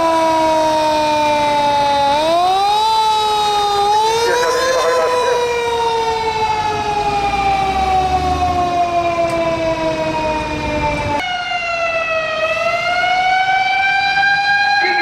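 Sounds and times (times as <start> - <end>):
fire truck siren wailing: 0.0 - 15.0
truck engine rumbling: 3.8 - 6.7.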